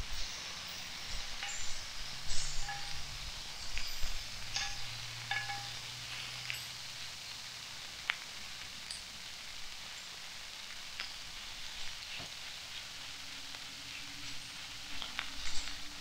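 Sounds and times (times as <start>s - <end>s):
frying hiss: 0.0s - 16.0s
metal tongs clinking on skillet: 0.1s - 8.2s, 8.8s - 9.4s, 10.8s - 12.3s.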